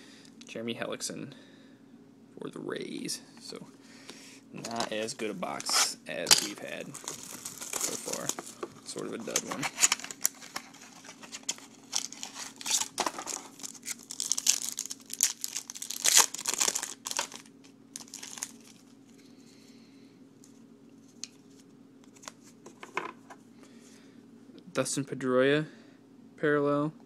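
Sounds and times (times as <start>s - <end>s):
cards rustling: 4.6s - 18.9s
foil wrapper tearing and crinkling: 6.4s - 18.9s.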